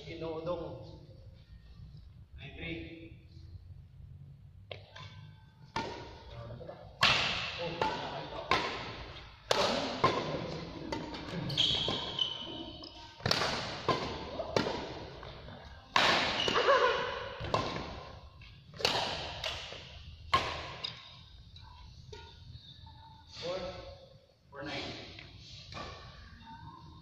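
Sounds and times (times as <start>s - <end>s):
rackets hitting shuttlecock: 4.7s - 6.3s, 7.0s - 12.2s, 12.8s - 21.2s.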